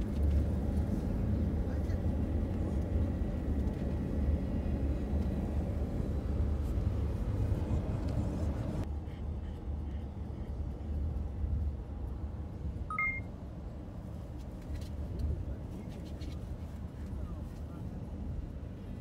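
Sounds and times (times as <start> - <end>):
car cabin road noise: 0.0 - 8.9
two-note electronic beep: 12.9 - 13.3.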